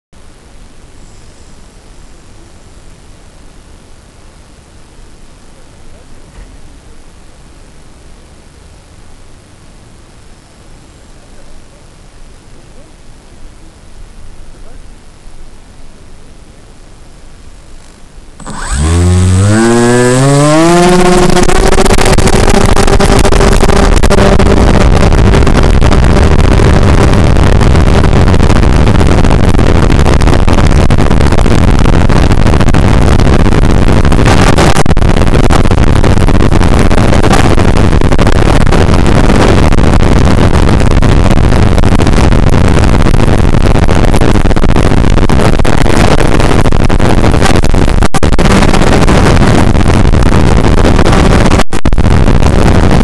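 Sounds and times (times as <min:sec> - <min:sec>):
loud steady rushing noise: 0:18.3 - 0:53.0
electric motor and propeller whine: 0:18.4 - 0:41.0.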